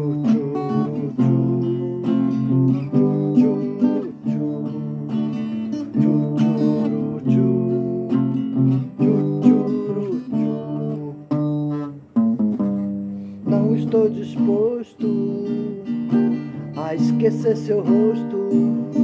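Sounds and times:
acoustic guitar strumming: 0.0s - 19.0s.

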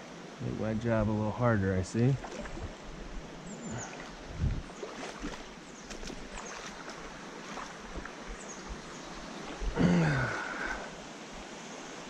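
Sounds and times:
stream flowing: 0.0s - 12.0s
man grunting: 9.8s - 10.8s.

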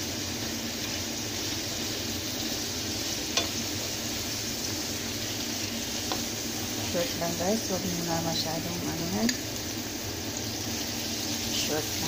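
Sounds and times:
meat sizzling in oil: 0.0s - 12.0s.

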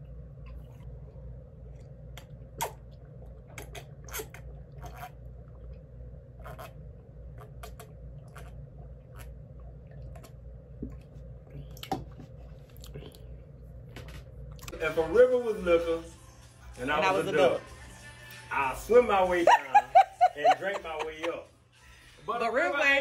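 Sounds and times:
steady low hum: 0.0s - 23.0s
person gulping a drink: 1.7s - 13.4s
wet mouth clicks: 2.1s - 5.8s, 6.4s - 6.8s, 7.4s - 11.1s.

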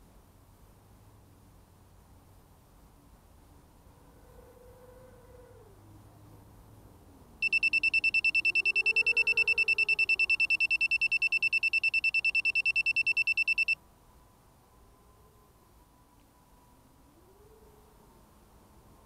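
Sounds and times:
fast high buzzer beeps: 7.4s - 13.8s.

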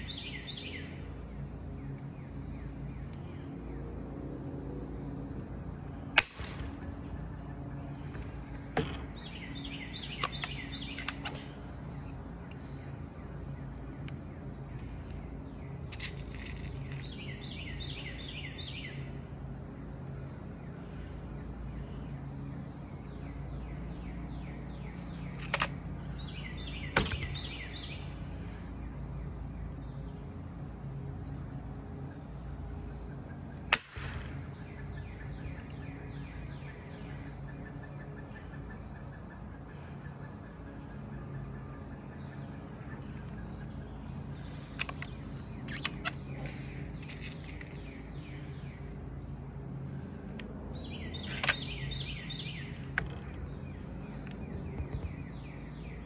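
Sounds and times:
low background hum: 0.0s - 56.0s
pellet rifle cracks: 6.1s - 6.8s, 33.7s - 34.4s.

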